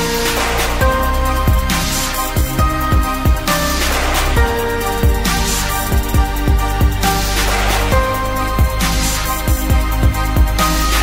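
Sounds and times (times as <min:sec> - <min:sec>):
held synth chords: 0:00.0 - 0:11.0
deep kick drums: 0:00.8 - 0:03.5, 0:04.4 - 0:07.2, 0:07.9 - 0:10.6.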